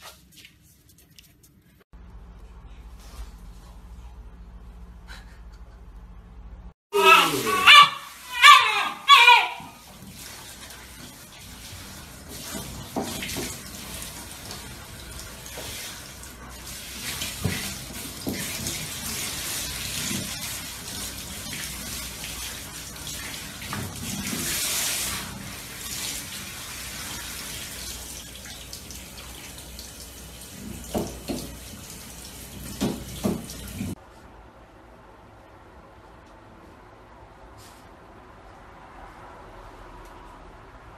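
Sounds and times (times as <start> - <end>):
shower head spraying water: 9.8 - 34.0.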